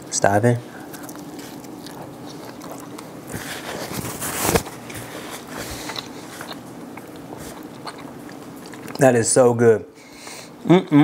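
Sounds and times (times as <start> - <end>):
man biting and chewing bread: 0.7 - 9.2.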